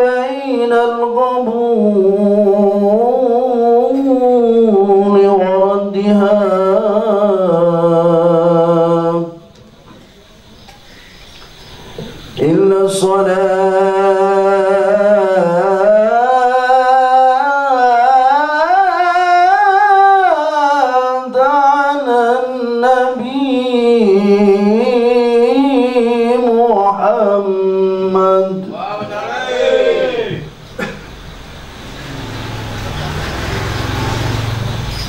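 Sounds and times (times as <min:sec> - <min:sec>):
man singing unaccompanied: 0:00.0 - 0:09.6, 0:12.3 - 0:30.5.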